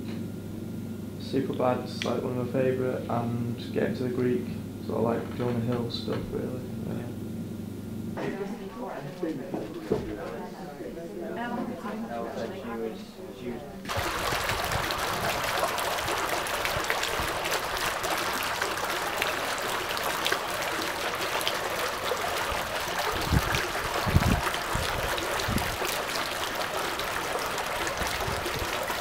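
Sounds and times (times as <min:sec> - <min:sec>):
fountain water splashing: 0:13.9 - 0:29.0.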